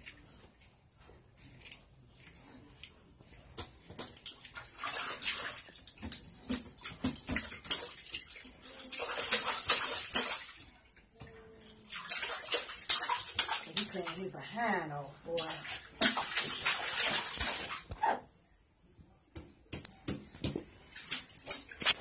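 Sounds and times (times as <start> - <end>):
water splashing in a tub: 3.6 - 18.1, 20.8 - 22.0.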